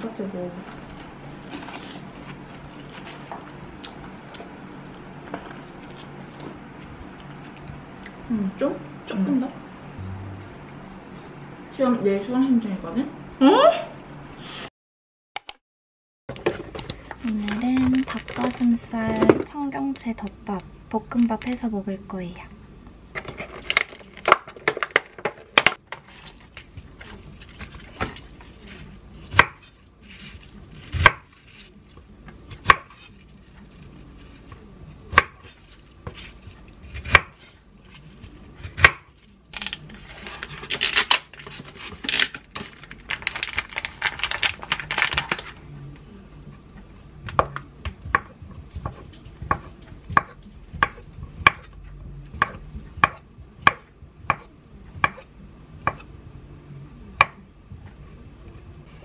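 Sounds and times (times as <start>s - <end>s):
knife chopping on wooden board: 48.1s - 51.7s.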